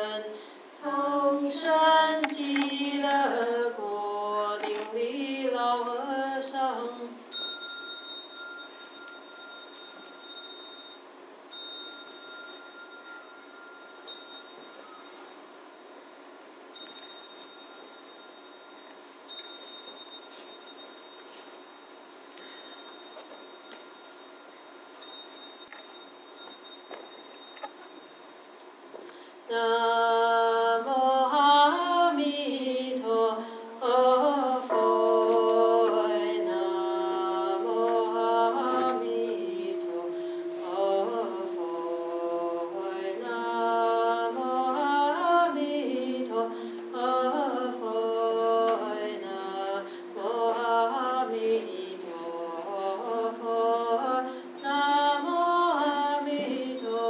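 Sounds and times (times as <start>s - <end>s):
steady held tone: 0.0s - 28.9s, 33.8s - 57.0s
chanting to a slow melody: 29.5s - 57.0s.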